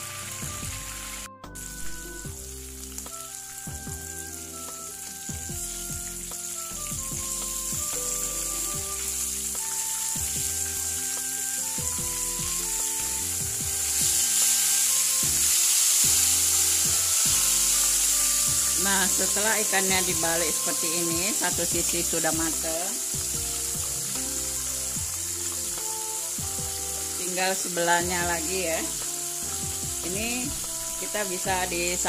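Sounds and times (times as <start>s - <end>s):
gentle background music: 0.0s - 32.0s
hot oil sizzling: 0.0s - 32.0s.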